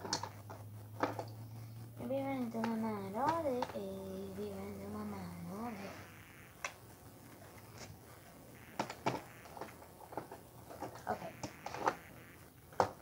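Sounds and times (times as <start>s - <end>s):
small items clicking and tapping: 0.0s - 1.4s, 2.3s - 4.5s, 8.7s - 13.0s.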